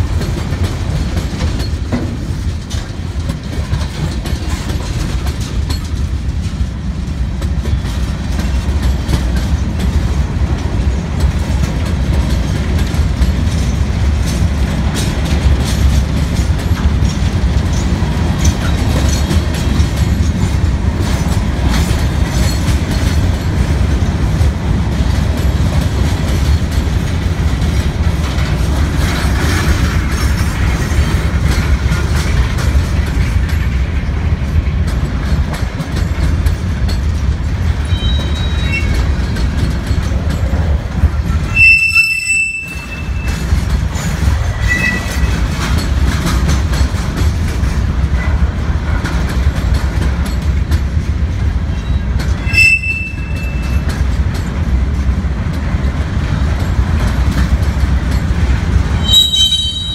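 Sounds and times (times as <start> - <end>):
clickety-clack over rail joints: 0.0 - 59.9
train wheels rumbling on rails: 0.0 - 59.9
faint wheel squeal: 37.9 - 39.0, 41.5 - 43.4, 44.6 - 45.3, 51.8 - 53.8, 59.0 - 59.9.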